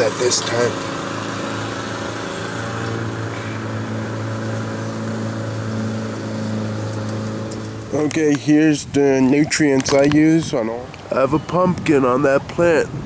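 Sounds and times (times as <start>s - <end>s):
lawn mower engine running: 0.0s - 9.2s.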